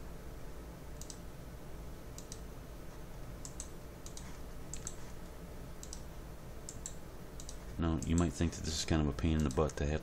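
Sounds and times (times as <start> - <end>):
faint low hum: 0.0 - 10.0
computer mouse clicking: 1.0 - 1.2, 2.2 - 2.4, 3.4 - 5.0, 5.8 - 6.1, 6.7 - 8.3, 9.4 - 9.8.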